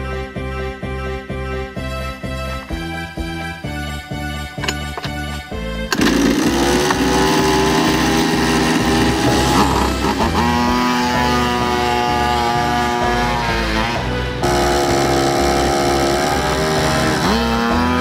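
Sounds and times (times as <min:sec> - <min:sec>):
small two-stroke engine revving: 0:05.9 - 0:18.0.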